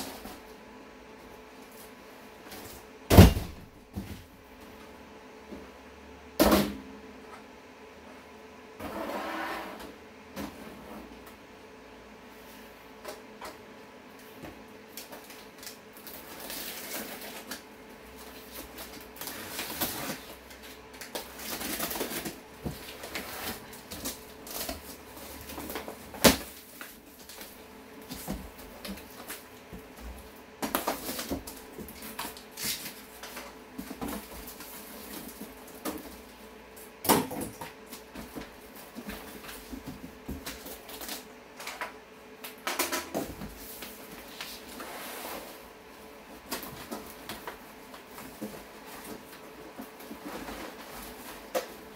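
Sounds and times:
cardboard flaps scraping: 0:46.4 - 0:51.9.

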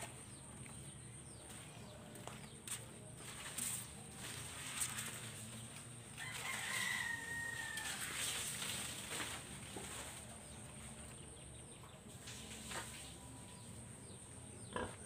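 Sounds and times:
rooster crowing: 0:06.2 - 0:08.4.

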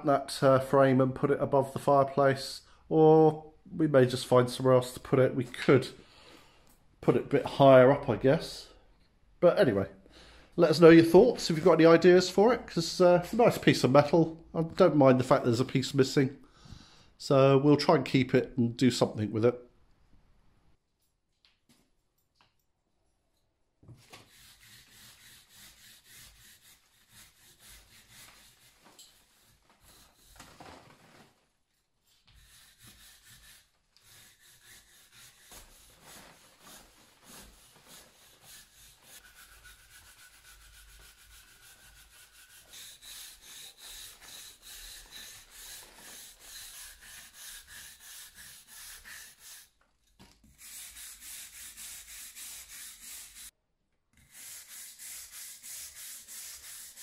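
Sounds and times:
brush scrubbing brick: 0:24.2 - 0:30.4, 0:32.4 - 0:49.7, 0:50.6 - 0:53.5, 0:54.3 - 0:57.0.

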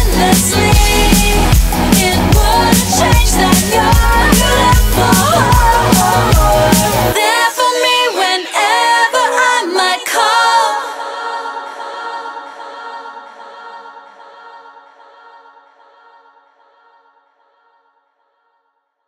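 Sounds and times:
layered vocals singing unaccompanied: 0:00.0 - 0:17.7.

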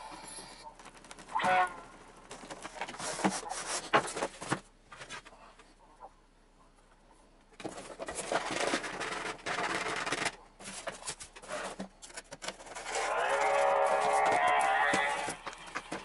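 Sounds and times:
foam wing scraping and rubbing: 0:12.6 - 0:16.0.

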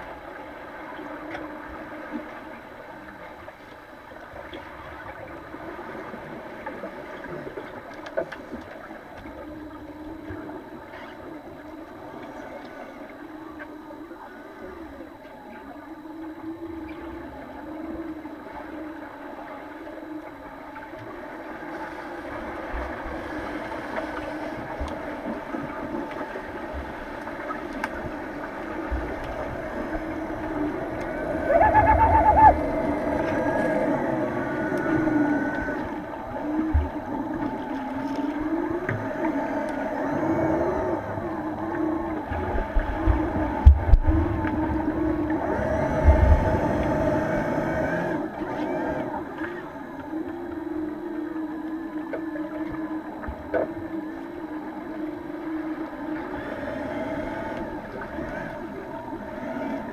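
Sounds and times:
underwater warbling hum: 0:00.0 - 0:59.9
loud steady tone: 0:28.8 - 0:37.4
bubbling: 0:30.4 - 0:33.5.

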